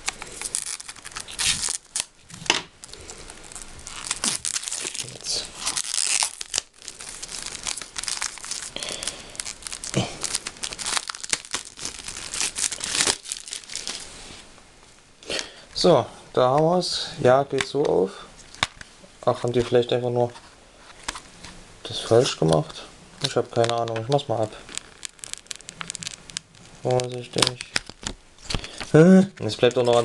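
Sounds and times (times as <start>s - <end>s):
plastic film crinkling and tearing: 0.0s - 14.1s, 22.2s - 30.0s.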